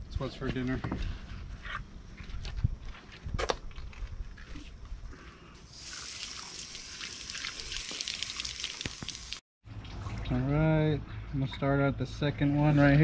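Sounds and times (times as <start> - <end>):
hose nozzle spraying water: 5.7 - 9.4.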